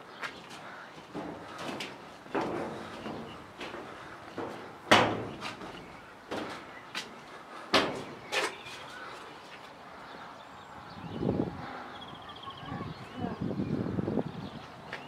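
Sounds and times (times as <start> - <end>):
footsteps on walkway: 0.0 - 11.0, 14.1 - 15.0.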